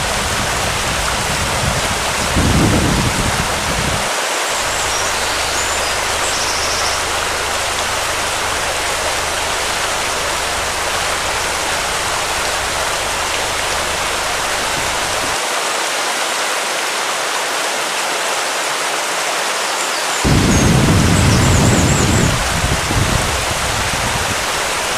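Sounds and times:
steady rushing noise: 0.0 - 15.4
low hum: 4.6 - 15.4.

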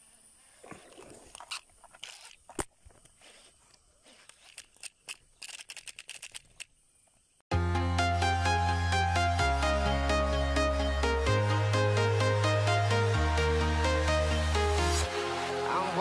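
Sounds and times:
fishing reel clicks: 4.5 - 6.7
loud electronic music: 7.5 - 16.0.

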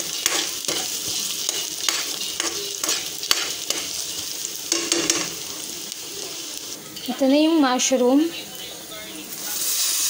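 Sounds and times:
utensil scraping frying pan: 0.0 - 7.3
onion and garlic sizzling: 0.0 - 10.0.

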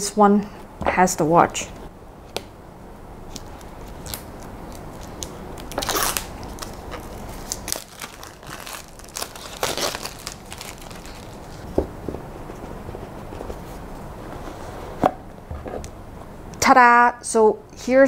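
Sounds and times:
packaging ripping: 3.3 - 11.7
packaging rustling and crinkling: 3.3 - 14.7.

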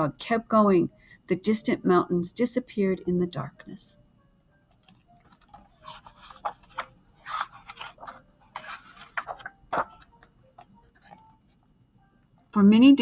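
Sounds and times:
book pages turning: 4.7 - 11.7.

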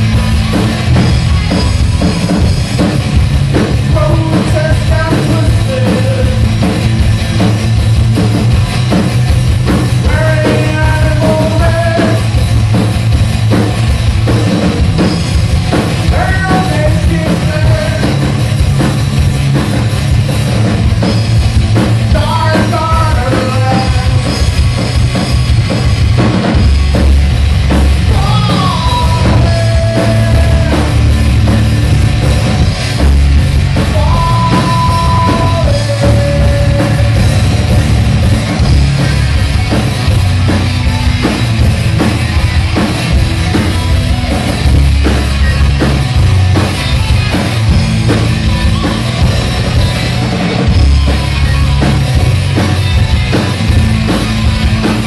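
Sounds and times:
drum kit: 0.0 - 55.0
electric guitars: 0.0 - 55.0.

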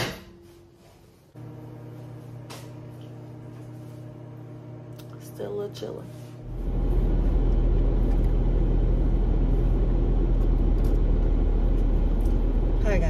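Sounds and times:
car engine rumble from inside: 6.4 - 13.0.

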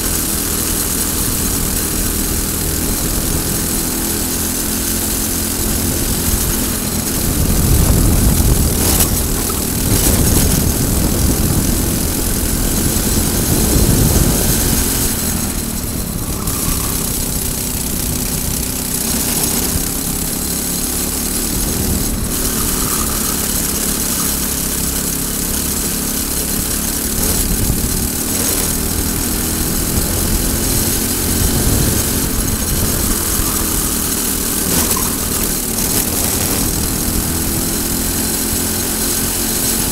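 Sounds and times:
kart engine revving: 0.0 - 39.9
wind rush over microphone: 5.5 - 18.8, 27.1 - 38.0.

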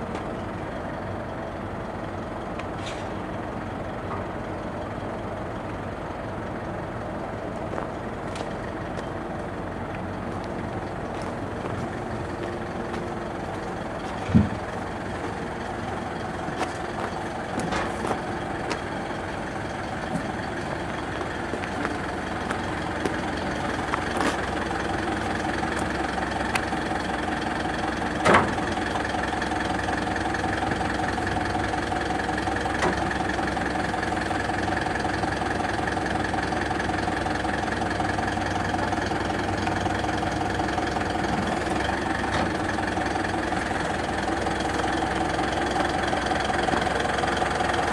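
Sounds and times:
truck engine idling: 0.0 - 47.9
short metallic clunks: 2.8 - 3.2, 14.1 - 14.7, 17.6 - 18.2, 28.2 - 28.6.

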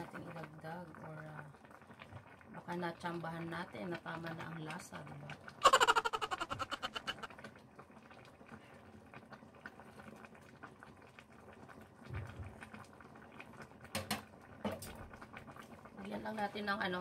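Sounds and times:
broth bubbling in pot: 0.0 - 17.0.

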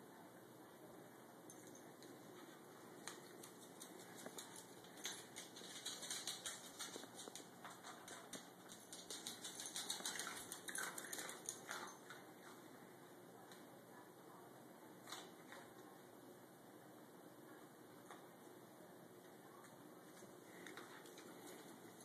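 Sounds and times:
dog claws clicking on hard floor: 3.0 - 12.2
kibble crunching and rattling: 3.0 - 12.2.

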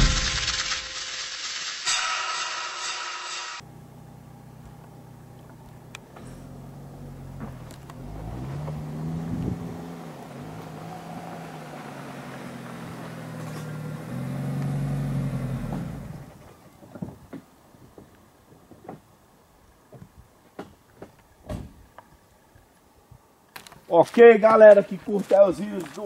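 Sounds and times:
vehicle engine running: 3.6 - 16.4.

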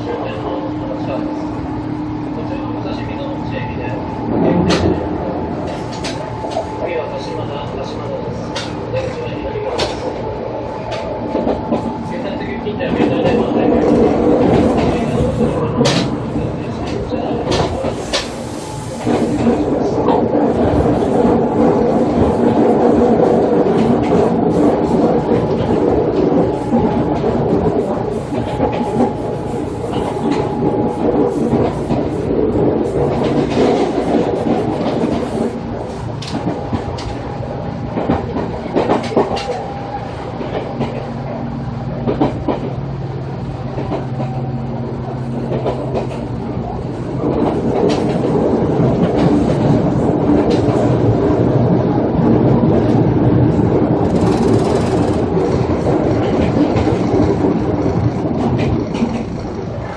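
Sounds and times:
train motors and fans humming: 0.0 - 59.9
train wheel noise: 0.0 - 59.9
wheels clicking over rail joints: 12.9 - 35.5, 47.2 - 51.0, 53.9 - 59.9.

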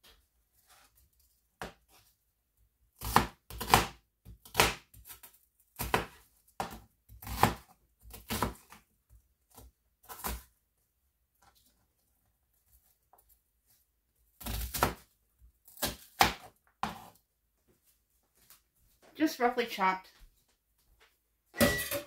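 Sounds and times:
knife chopping onion on cutting board: 3.0 - 8.8, 14.4 - 15.1.

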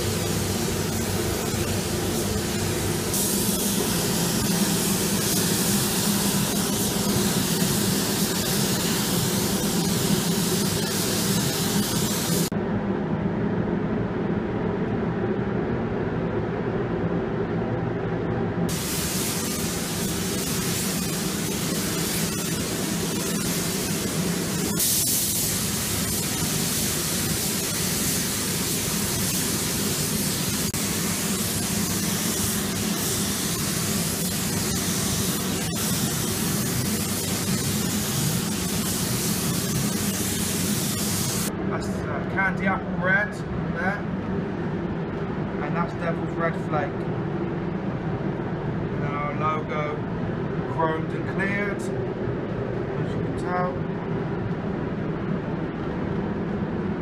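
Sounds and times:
paint spray gun hissing: 0.0 - 12.5, 18.7 - 41.5.

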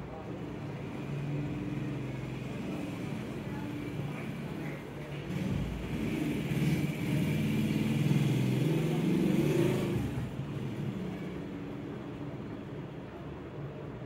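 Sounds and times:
vehicle engine revving: 5.3 - 11.6.

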